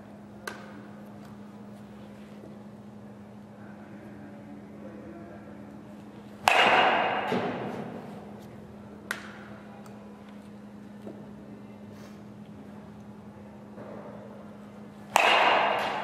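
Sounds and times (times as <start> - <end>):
bat hitting ball: 6.4 - 8.3, 15.1 - 16.0.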